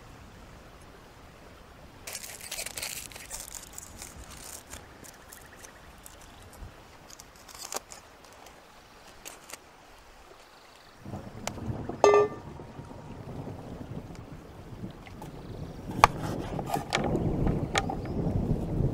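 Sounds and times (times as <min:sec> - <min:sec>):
aluminium foil crinkling: 0:02.0 - 0:09.6.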